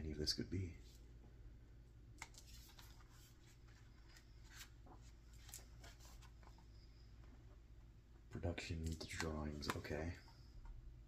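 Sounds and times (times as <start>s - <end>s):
book pages turning: 2.2s - 6.6s, 8.7s - 10.0s.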